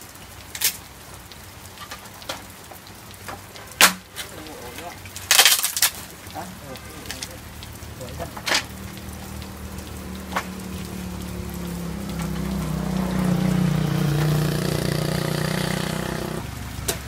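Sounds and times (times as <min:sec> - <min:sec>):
rain hiss: 0:00.0 - 0:17.0
vehicle engine running: 0:08.7 - 0:16.9.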